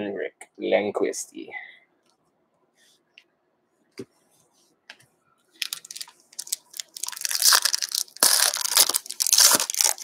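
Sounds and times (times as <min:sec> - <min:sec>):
foil wrapper crinkling: 0:05.6 - 0:10.0.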